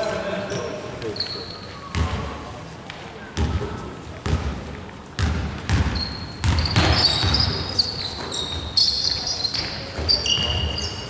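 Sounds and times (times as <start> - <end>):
trainers squeaking on floor: 0.5 - 1.9, 5.9 - 11.0
basketball dribbling: 5.2 - 8.8.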